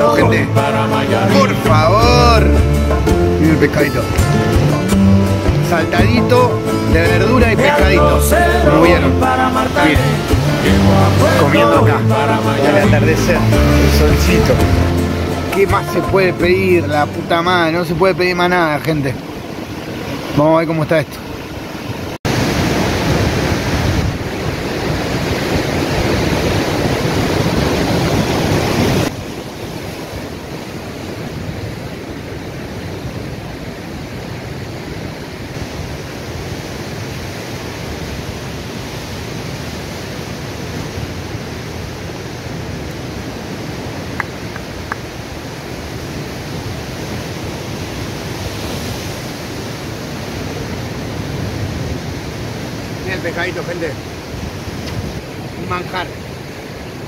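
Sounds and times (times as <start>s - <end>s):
wind: 0.0s - 57.0s
surf breaking on rocks: 17.0s - 57.0s.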